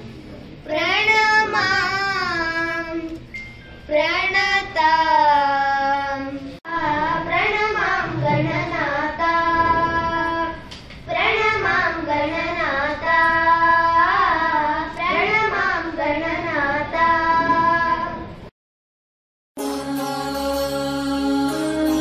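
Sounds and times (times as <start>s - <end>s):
child singing prayer song: 0.7s - 3.1s, 3.9s - 18.2s.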